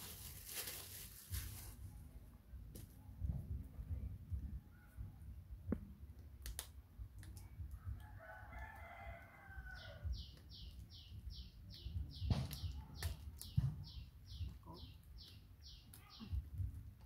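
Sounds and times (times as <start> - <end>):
rooster crowing: 8.0 - 10.0.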